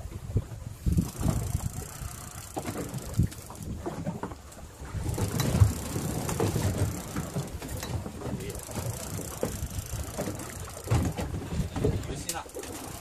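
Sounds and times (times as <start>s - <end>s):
fishing reel ratchet clicking: 0.8s - 3.7s, 5.1s - 11.2s, 12.2s - 13.0s.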